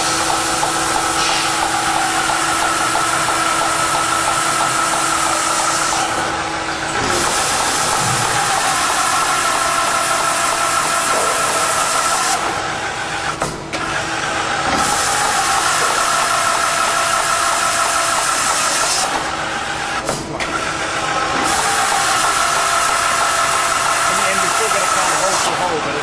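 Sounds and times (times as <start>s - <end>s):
drill cutting through steel: 0.0s - 6.4s, 7.0s - 12.6s, 14.6s - 19.4s, 21.3s - 26.0s
hissing air and coolant spray: 0.0s - 6.4s, 7.0s - 12.7s, 14.7s - 20.0s, 21.4s - 25.8s
machine clunk: 6.9s - 8.7s, 20.0s - 20.6s.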